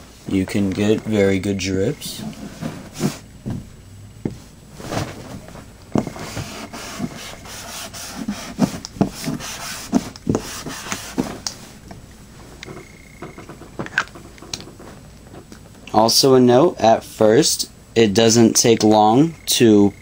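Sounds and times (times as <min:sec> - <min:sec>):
marker scratching on whiteboard: 0:06.0 - 0:11.7.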